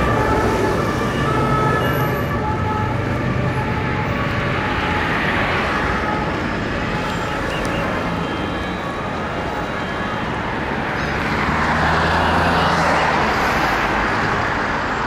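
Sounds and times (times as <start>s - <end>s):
city road traffic: 0.0s - 15.0s.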